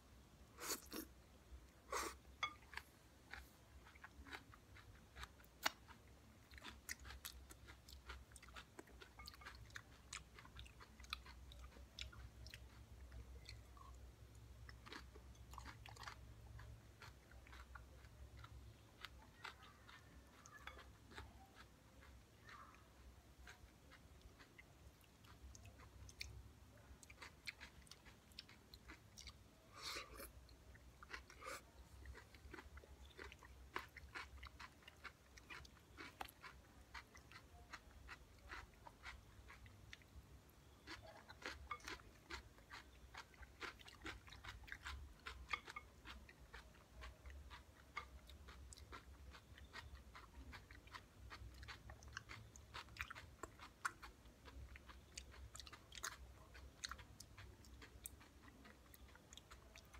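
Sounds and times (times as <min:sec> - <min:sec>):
chewing crunchy salad: 0:00.5 - 0:59.9
wet mouth sounds: 0:00.6 - 0:01.1.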